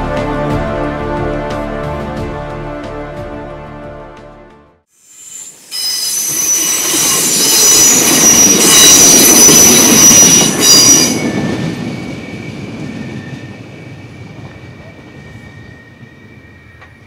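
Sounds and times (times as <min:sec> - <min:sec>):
train passing on rails: 0:05.0 - 0:17.0
train wheel squeal: 0:05.0 - 0:17.0.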